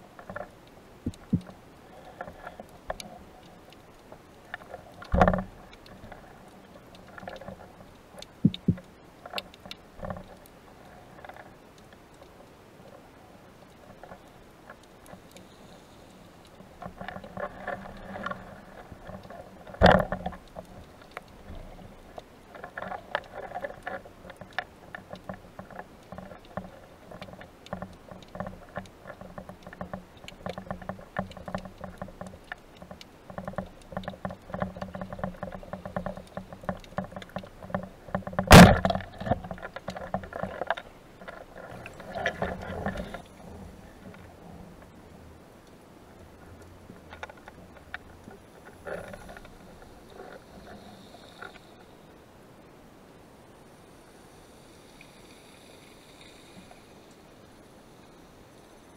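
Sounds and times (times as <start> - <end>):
underwater crackle of clicks: 0.1 - 52.0
sloshing water movement: 12.3 - 52.1.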